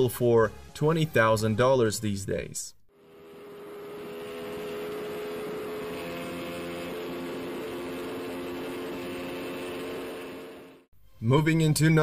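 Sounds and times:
motorcycle engine at high revs: 0:02.9 - 0:10.9.

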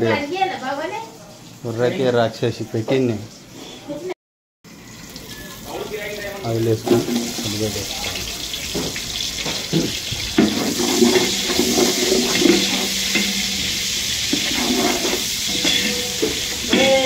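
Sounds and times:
onions sizzling in a pot: 0:00.0 - 0:04.1, 0:04.7 - 0:17.0
ladle knocking: 0:08.7 - 0:17.0.

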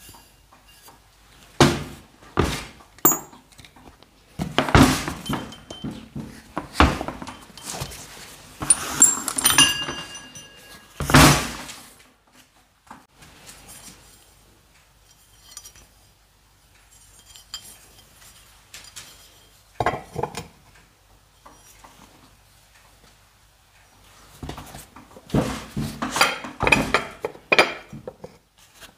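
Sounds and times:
metal parts clinking and knocking: 0:03.0 - 0:03.5, 0:05.1 - 0:06.1, 0:08.6 - 0:11.3
ringing metal clang: 0:03.1 - 0:03.4, 0:08.7 - 0:11.2.

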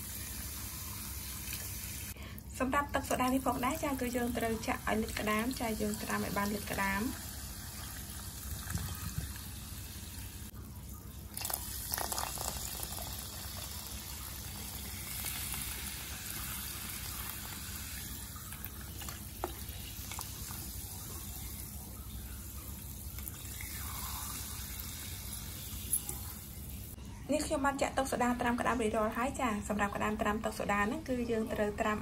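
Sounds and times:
soda water pouring into tub: 0:03.6 - 0:10.6, 0:11.2 - 0:27.0.

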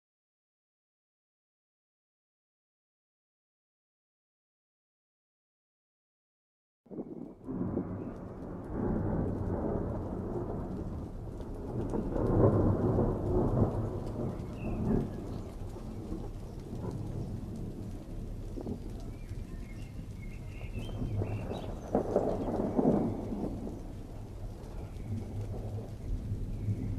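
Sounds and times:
thunder rumbling: 0:06.9 - 0:26.9.

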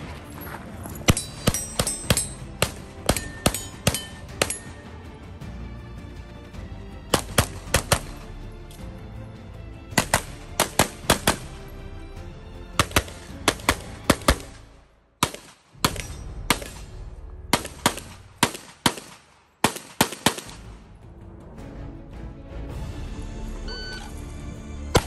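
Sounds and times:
pistol firing rapid shots: 0:01.2 - 0:04.5, 0:07.2 - 0:08.2, 0:10.0 - 0:11.5, 0:12.8 - 0:16.9, 0:17.5 - 0:20.7.

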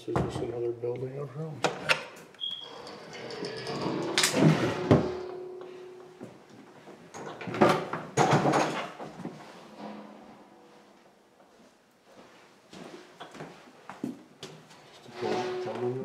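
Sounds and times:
door hinge creaking: 0:01.9 - 0:06.0
knocks and scrapes: 0:02.7 - 0:06.4, 0:07.2 - 0:11.2, 0:14.8 - 0:16.0.

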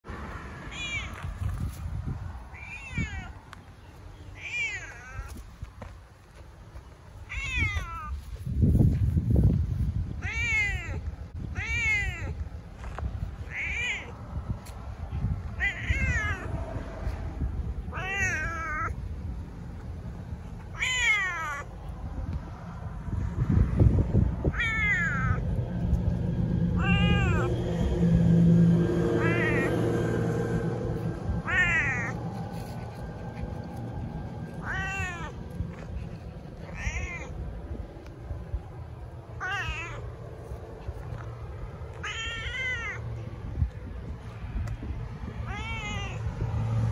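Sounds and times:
cat meowing: 0:00.7 - 0:01.4, 0:02.5 - 0:03.4, 0:04.4 - 0:05.4, 0:07.3 - 0:08.2, 0:10.2 - 0:12.4, 0:13.5 - 0:14.2, 0:15.6 - 0:16.5, 0:17.9 - 0:19.0, 0:20.7 - 0:21.7, 0:24.5 - 0:25.4, 0:26.8 - 0:27.5, 0:29.2 - 0:29.7, 0:31.4 - 0:32.2, 0:34.6 - 0:35.4, 0:36.7 - 0:37.4, 0:39.4 - 0:40.1, 0:41.9 - 0:43.0, 0:45.4 - 0:46.2.

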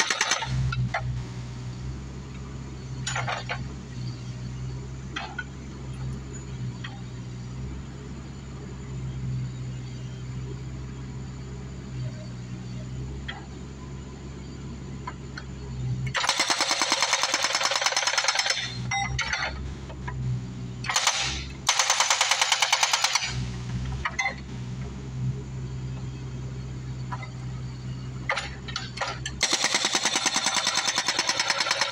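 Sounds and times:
diesel engine running: 0:00.0 - 0:31.9
hydraulic hammer pounding concrete: 0:20.9 - 0:23.4, 0:28.3 - 0:31.9.

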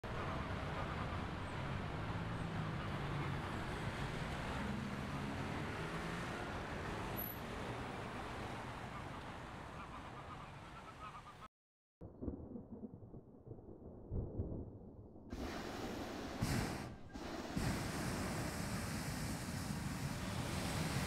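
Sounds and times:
engines droning: 0:00.0 - 0:11.0.

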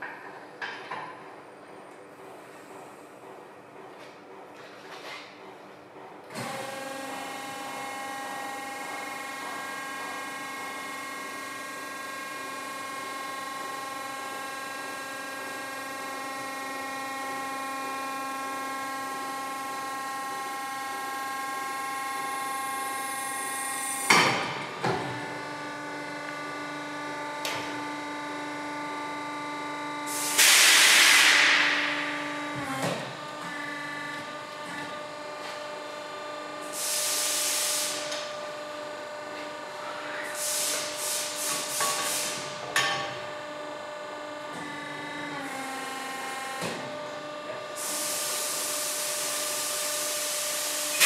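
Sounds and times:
burst of hiss: 0:30.1 - 0:31.8, 0:36.8 - 0:38.0, 0:40.4 - 0:42.4.

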